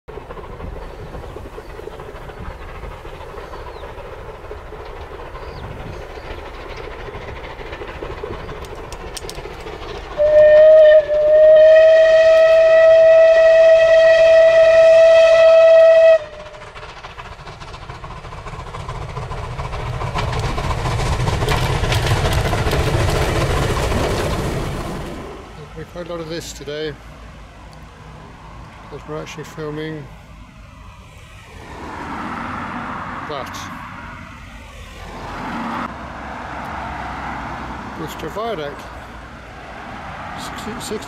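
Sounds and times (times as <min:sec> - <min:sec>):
train rumble: 0:00.1 - 0:41.0
steam whistle blasts: 0:10.2 - 0:16.5.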